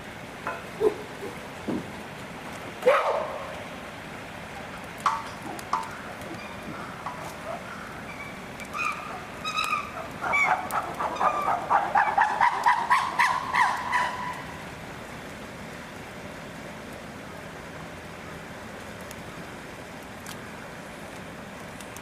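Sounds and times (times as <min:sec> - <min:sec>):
animal calls: 0:00.8 - 0:01.4, 0:05.4 - 0:14.5
quickening pitched animal calls: 0:06.1 - 0:14.5.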